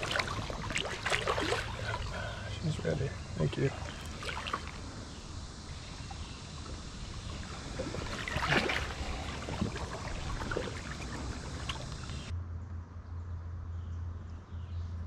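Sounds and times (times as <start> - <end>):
water splash: 0.0 - 2.4, 3.4 - 12.3
wading through shallow water: 0.0 - 12.3.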